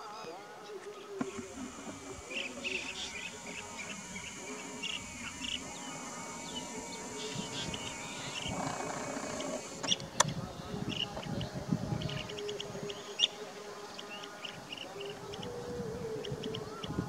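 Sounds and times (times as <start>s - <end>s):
high-pitched insect drone: 1.2s - 10.0s
bird chirps: 1.4s - 10.3s.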